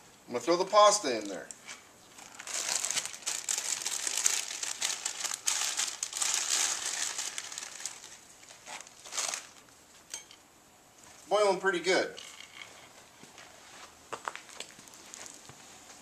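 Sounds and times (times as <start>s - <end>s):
plastic packaging crinkling: 2.1s - 9.7s.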